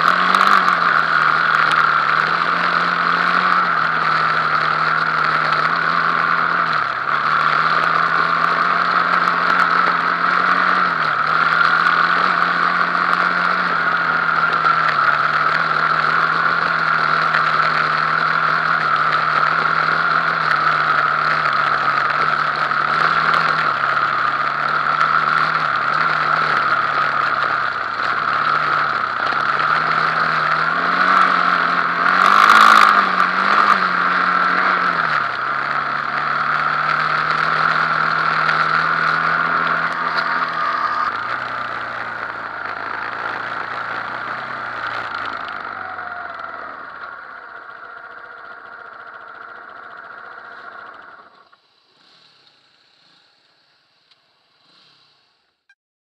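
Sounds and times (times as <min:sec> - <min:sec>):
quad bike engine running: 0:00.0 - 0:55.8
brief loud noise: 0:39.9 - 0:41.4.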